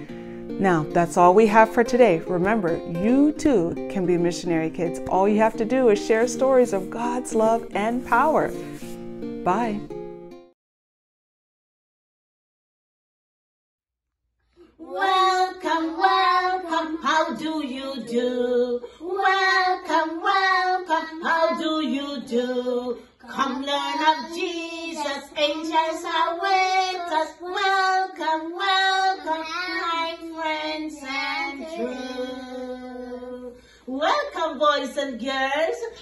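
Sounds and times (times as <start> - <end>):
children and woman singing: 1.2 - 8.6, 14.6 - 34.4.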